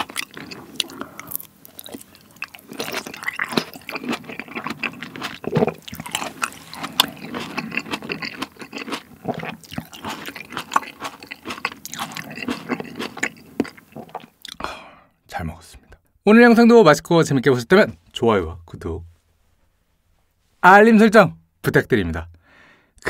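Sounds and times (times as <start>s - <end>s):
chewing tomato: 0.0s - 14.6s.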